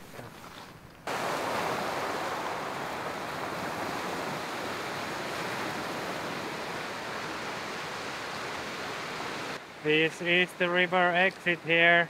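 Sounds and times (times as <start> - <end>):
waves washing on gravel beach: 1.1 - 10.2.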